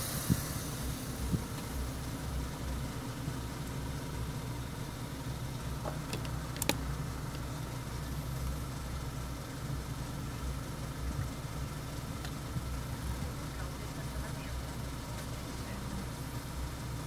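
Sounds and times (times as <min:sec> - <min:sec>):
car engine idling: 0:00.0 - 0:17.0
sharp clicks: 0:06.0 - 0:07.4.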